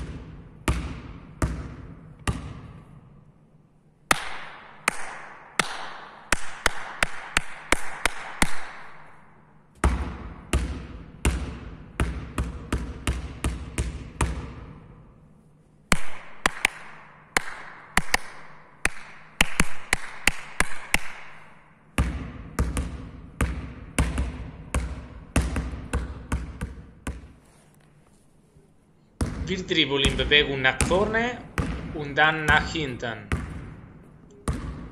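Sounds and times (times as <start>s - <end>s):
basketball smacking on floor: 30.8s - 31.9s, 33.3s - 33.8s.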